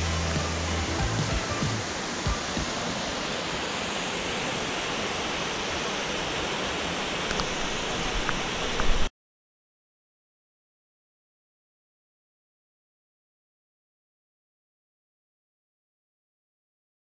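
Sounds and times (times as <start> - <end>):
waterfall and stream rushing over rocks: 0.0 - 9.1.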